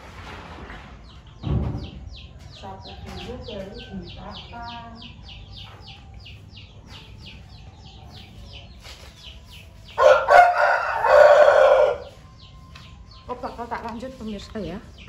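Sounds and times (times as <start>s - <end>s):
rooster crowing: 10.0s - 12.2s.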